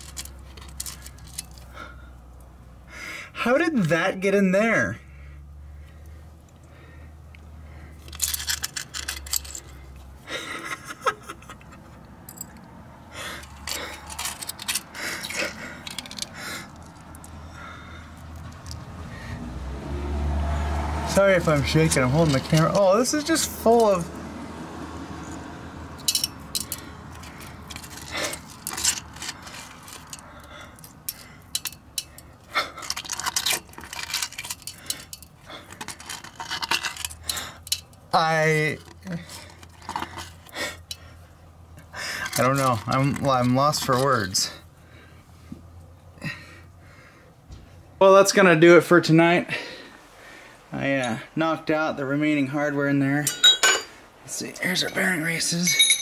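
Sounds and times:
hand clicking and scraping metal: 0.0s - 1.8s, 7.3s - 10.2s, 11.6s - 18.9s, 21.1s - 24.0s, 26.0s - 44.7s.

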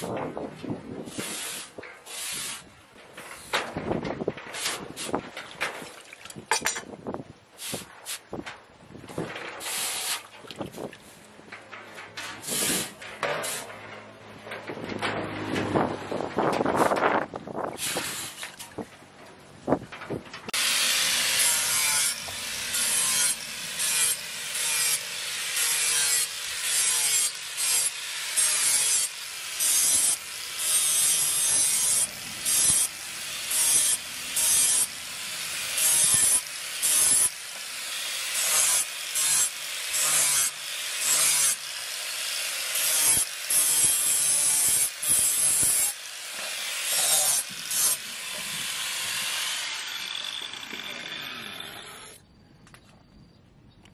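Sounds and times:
angle grinder grinding steel: 12.3s - 13.9s, 20.5s - 52.2s.

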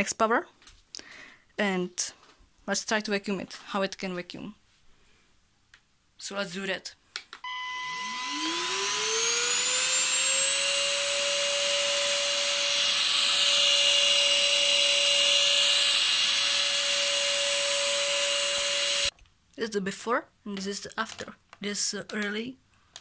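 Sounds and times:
vacuum motor whine: 7.4s - 19.1s
vacuum sucking on carpet: 7.5s - 19.1s.

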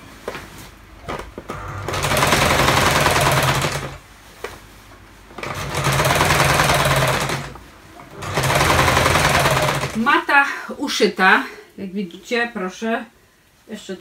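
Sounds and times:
sewing machine stitching: 1.5s - 4.0s, 5.4s - 10.1s.

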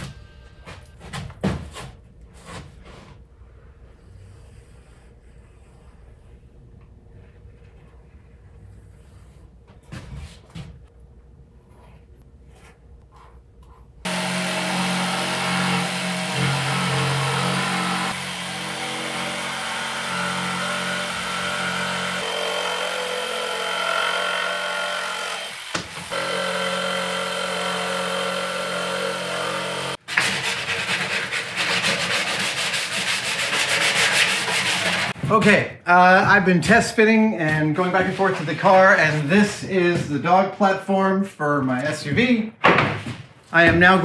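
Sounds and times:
pencil scratching on plywood: 4.0s - 9.6s, 30.0s - 35.2s
hand sanding wood edge: 12.6s - 35.2s
power saw cutting plywood: 14.0s - 35.2s.

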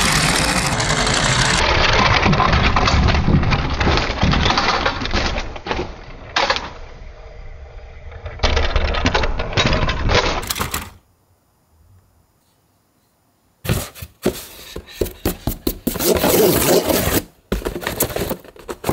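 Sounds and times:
sharp crashing noises: 0.0s - 6.7s
metal toy cars rattling on wood: 0.0s - 6.8s, 8.4s - 11.0s.

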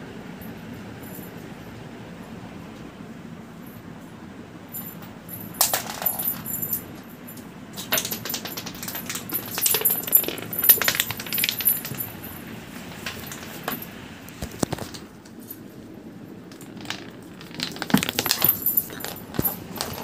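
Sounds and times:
plastic token skittering on concrete: 16.6s - 20.0s.

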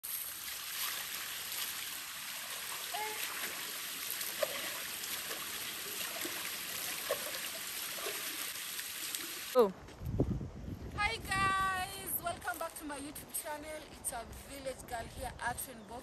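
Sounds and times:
running stream water: 0.0s - 9.6s
hands splashing water: 2.5s - 9.3s.

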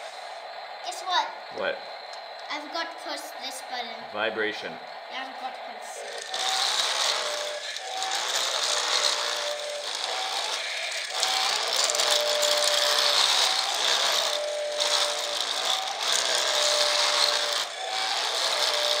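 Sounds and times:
small electric motor whine: 0.0s - 19.0s
toy roller rattling over gravel: 6.0s - 19.0s.

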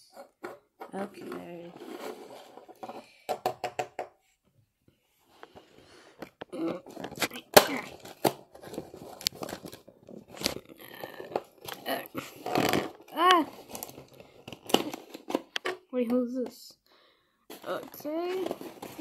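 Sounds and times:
cardboard scraping and crinkling: 0.2s - 3.1s, 5.3s - 15.5s, 17.5s - 19.0s.

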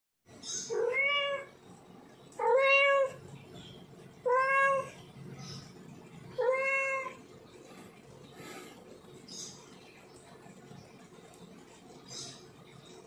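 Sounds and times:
cat meowing: 0.7s - 1.5s, 6.4s - 7.2s.

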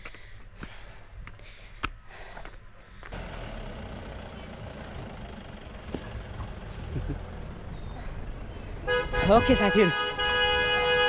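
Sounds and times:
vehicle engine running: 3.1s - 8.9s.

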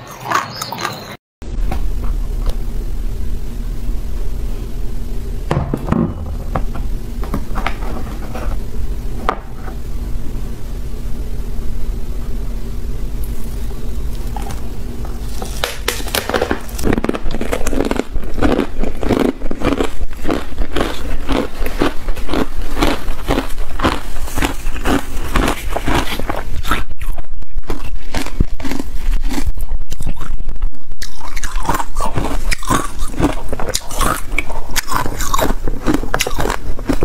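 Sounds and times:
ice being chewed crunching: 0.0s - 1.2s, 13.3s - 30.4s, 31.0s - 37.0s
steady low hum: 1.4s - 37.0s.

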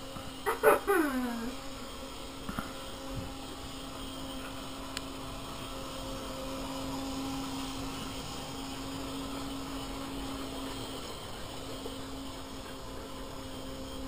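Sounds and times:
toy train motor humming: 0.0s - 14.0s.

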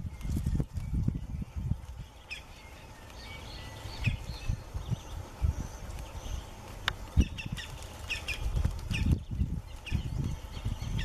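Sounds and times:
bird calls: 0.0s - 11.0s.

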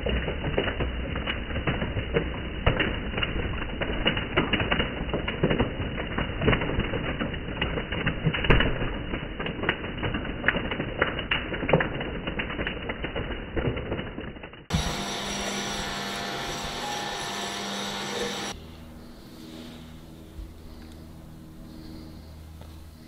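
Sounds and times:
shredder crunching and snapping rubber: 0.0s - 18.6s
low machine hum: 14.7s - 23.0s.

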